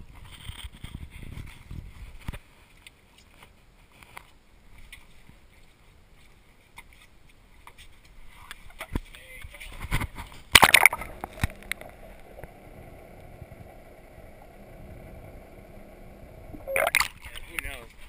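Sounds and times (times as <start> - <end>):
low rumble: 11.0 - 16.8.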